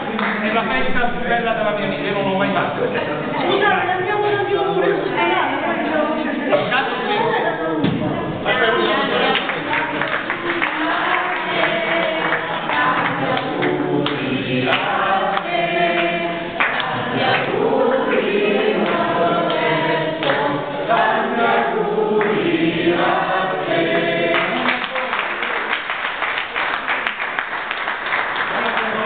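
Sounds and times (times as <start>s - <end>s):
people clapping: 0.0s - 1.0s, 8.5s - 21.6s, 22.2s - 29.0s
group singing birthday song: 0.0s - 29.0s.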